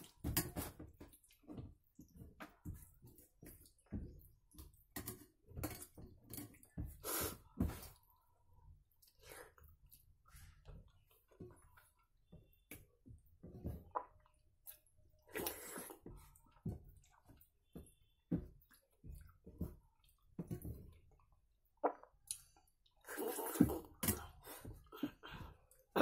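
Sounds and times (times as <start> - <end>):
chewing: 18.6 - 26.0.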